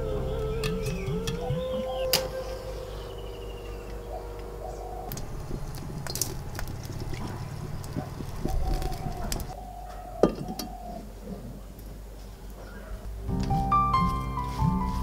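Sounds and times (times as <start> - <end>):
wood fire crackling: 0.0 - 9.6
birds calling: 0.0 - 13.1.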